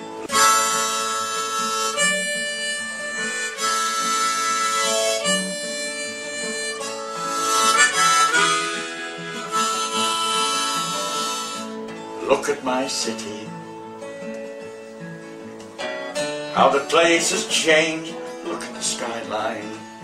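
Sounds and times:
harmonica playing chords: 0.0 - 14.1
light guitar accompaniment: 0.0 - 20.0.

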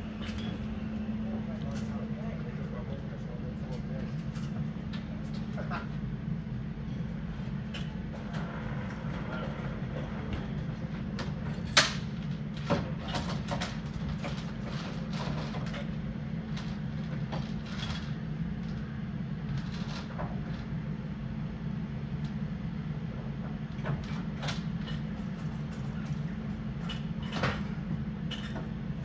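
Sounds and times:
machine humming: 0.0 - 3.7.

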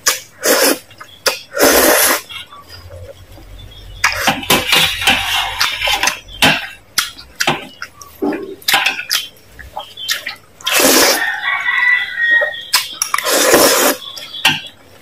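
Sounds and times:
wet chewing: 0.0 - 14.7
slurping noodles: 0.1 - 0.8, 1.4 - 2.3, 10.6 - 11.3, 13.1 - 14.0.

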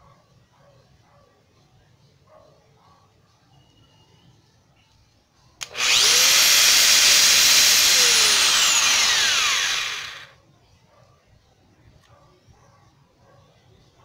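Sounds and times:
angle grinder whining: 5.6 - 10.3.

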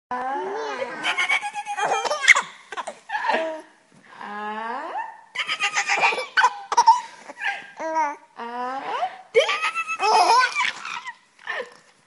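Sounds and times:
baby giggling: 0.8 - 3.6, 5.4 - 8.1, 9.4 - 11.2.

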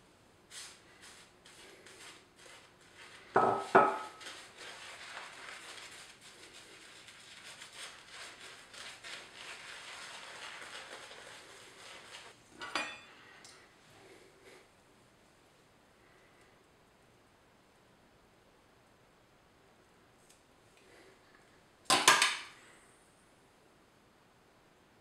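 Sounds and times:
shaving brush swishing lather: 0.5 - 3.4, 4.0 - 12.4.

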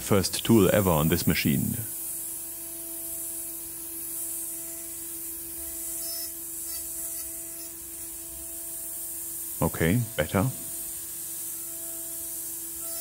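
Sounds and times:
coolant mist hissing: 0.0 - 2.4, 7.6 - 12.8.

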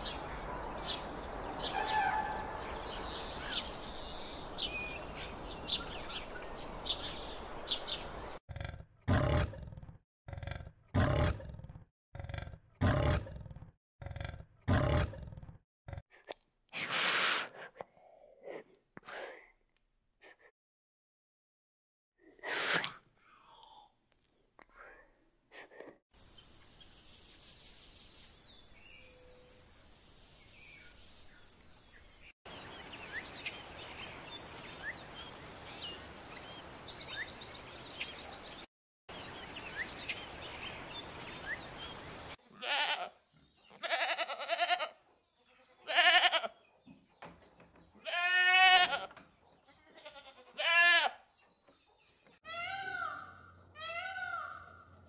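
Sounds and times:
peafowl calling: 1.6 - 2.7, 52.5 - 54.9
loud bleats: 42.5 - 46.6, 48.0 - 49.1, 50.0 - 51.2.

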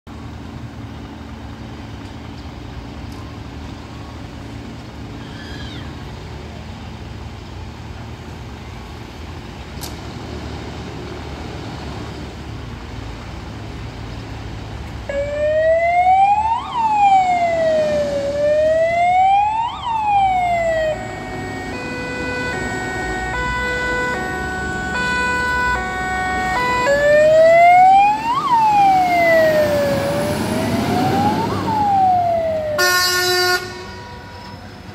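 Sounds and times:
fire engine siren: 15.0 - 34.9.

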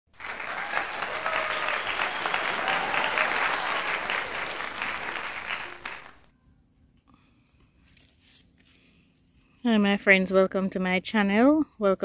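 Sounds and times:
crowd clapping: 0.1 - 6.3.

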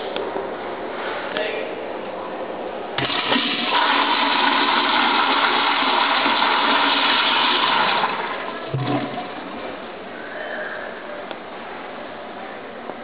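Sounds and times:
toilet flushing: 3.0 - 10.0.

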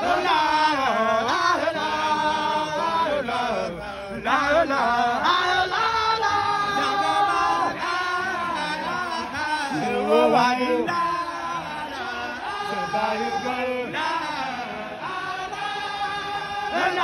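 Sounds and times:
man chanting into a microphone: 8.6 - 11.8, 12.6 - 14.0.

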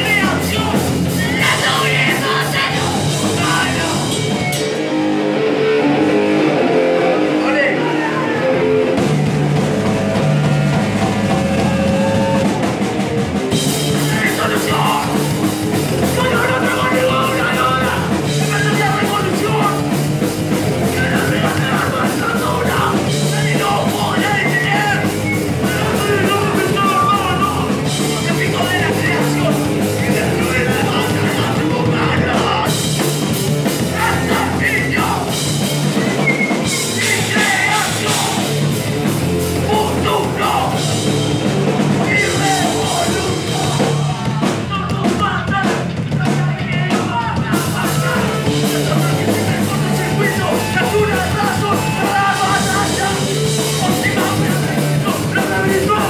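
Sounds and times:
vocalist shouting: 0.0 - 4.1, 7.1 - 8.7, 16.0 - 19.9, 33.8 - 35.4, 36.7 - 38.5, 42.0 - 56.0
drum kit with crashing cymbals: 0.0 - 5.0, 9.0 - 56.0
distorted electric guitar: 0.0 - 56.0.

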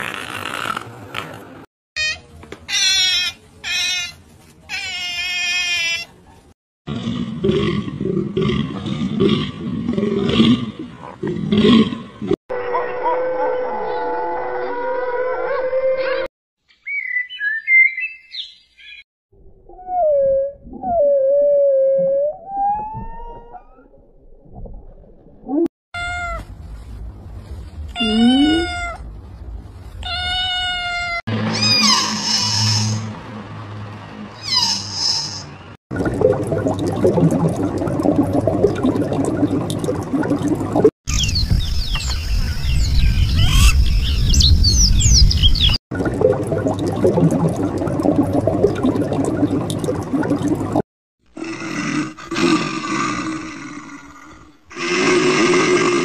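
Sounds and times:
cat meowing: 28.0 - 29.0
crackling bubbling water: 35.9 - 40.9, 46.0 - 50.8
bear growling: 51.3 - 56.0.

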